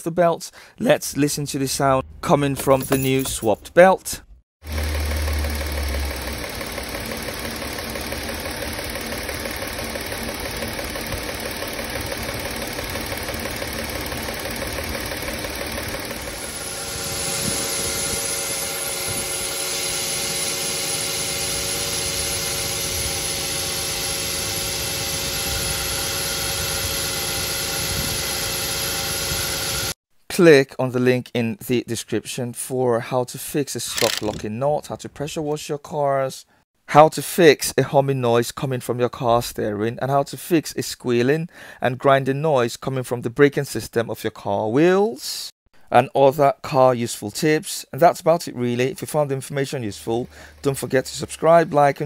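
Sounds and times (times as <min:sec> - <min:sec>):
drive belt running on pulleys: 0:04.6 - 0:30.0, 0:49.9 - 0:52.0.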